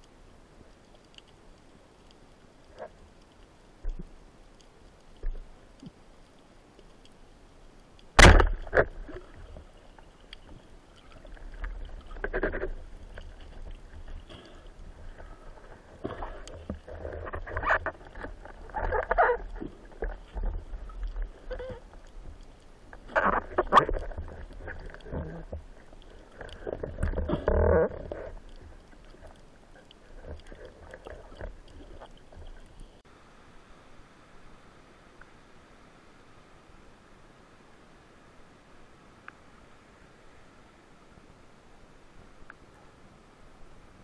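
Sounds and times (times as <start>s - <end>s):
bubbling rushing water: 8.2s - 33.0s.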